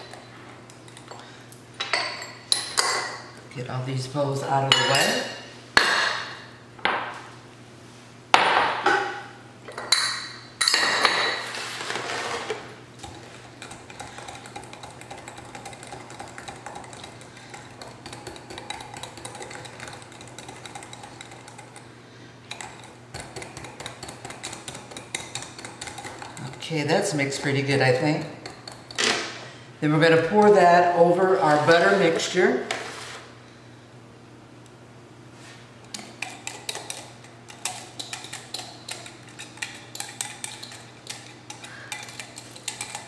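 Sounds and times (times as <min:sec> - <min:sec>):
dishes clinking: 0:04.7 - 0:06.3
whisk beating batter in glass jug: 0:13.0 - 0:21.9, 0:22.5 - 0:29.0, 0:36.0 - 0:43.0.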